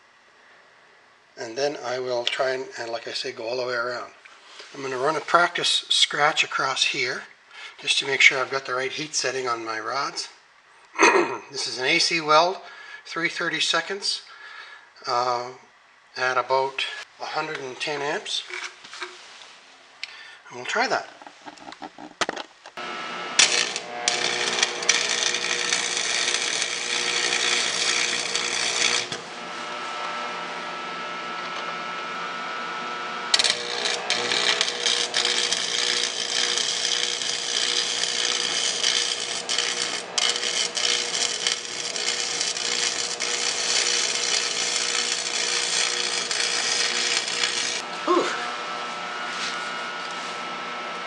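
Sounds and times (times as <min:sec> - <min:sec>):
welding arc crackling: 0:22.8 - 0:30.2, 0:33.0 - 0:48.5.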